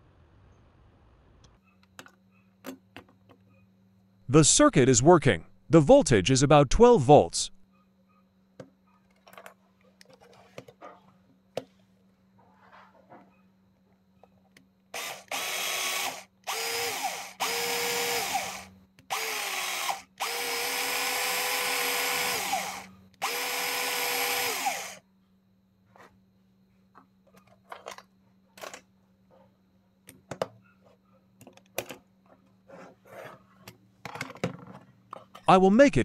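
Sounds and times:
cordless drill motor running: 15.0s - 25.0s
handling clicks and knocks: 33.6s - 35.5s.

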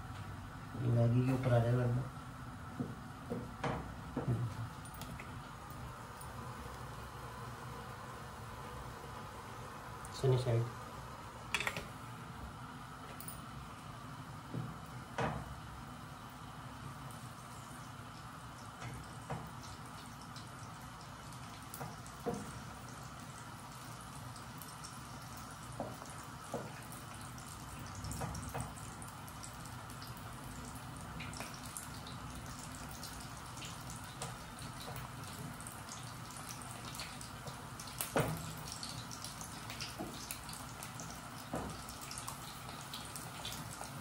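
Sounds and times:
noodles bubbling in a pan: 2.0s - 44.0s
utensils tapping a pan: 11.5s - 11.9s.

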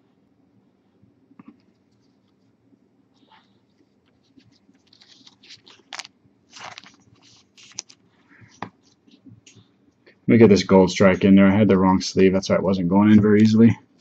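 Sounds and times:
cards rustling and scraping: 3.2s - 9.7s.

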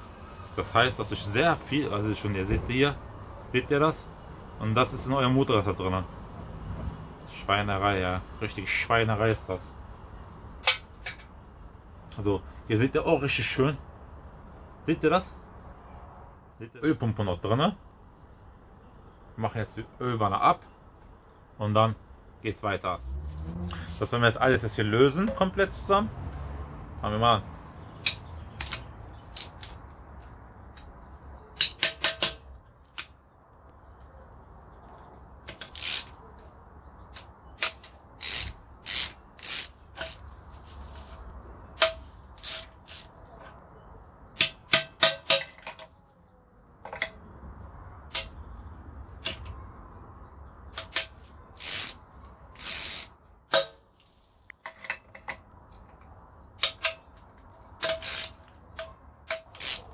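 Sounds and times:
metallic tool clicks: 31.6s - 33.1s, 50.7s - 52.0s, 56.6s - 57.2s, 57.8s - 59.9s
ratchet wrench clicking: 35.5s - 36.2s, 37.2s - 40.2s, 41.8s - 43.1s, 50.8s - 52.0s, 52.6s - 53.2s, 56.6s - 57.0s, 57.8s - 59.9s.

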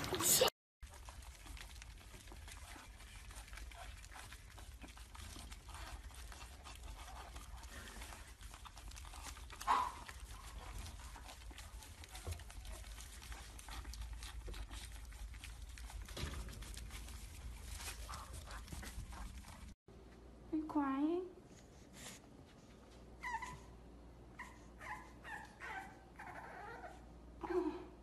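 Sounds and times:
puppies crunching kibble: 0.8s - 19.8s.

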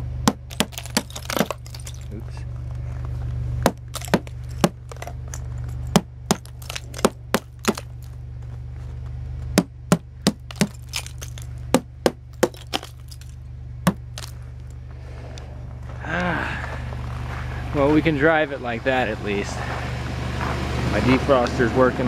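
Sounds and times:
hammer knocking ice off metal: 0.2s - 2.2s, 3.6s - 5.2s, 5.9s - 8.1s, 9.6s - 13.3s, 13.9s - 14.4s.

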